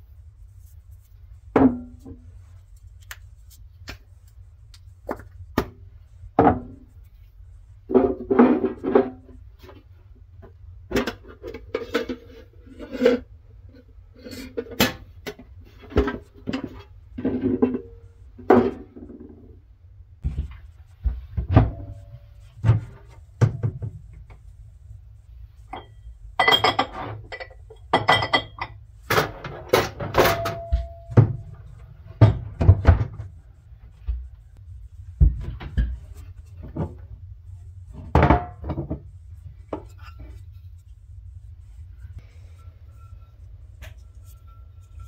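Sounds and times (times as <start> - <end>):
low steady rumble: 0.0 - 45.0
cookware knocking and clinking: 25.7 - 31.4.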